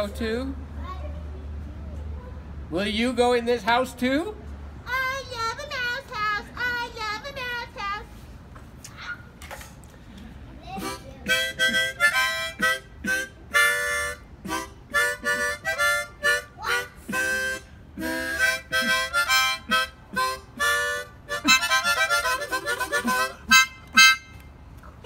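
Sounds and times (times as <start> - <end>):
harmonica playing: 10.8 - 24.5.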